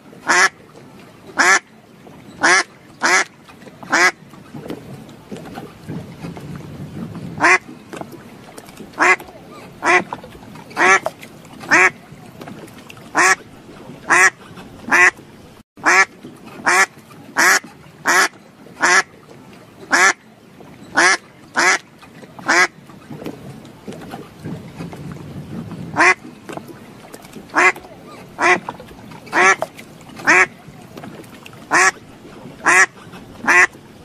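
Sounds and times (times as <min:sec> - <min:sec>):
duck quacking: 0:00.3 - 0:00.5, 0:02.4 - 0:03.3, 0:07.4 - 0:07.6, 0:09.0 - 0:09.2, 0:09.8 - 0:10.1, 0:10.8 - 0:11.0, 0:11.7 - 0:12.0, 0:13.2 - 0:13.4, 0:14.1 - 0:15.1, 0:19.9 - 0:20.2, 0:21.0 - 0:21.8, 0:26.0 - 0:26.2, 0:27.5 - 0:27.8, 0:28.4 - 0:28.6, 0:29.3 - 0:29.6, 0:30.2 - 0:30.5, 0:31.7 - 0:32.0, 0:32.6 - 0:33.7.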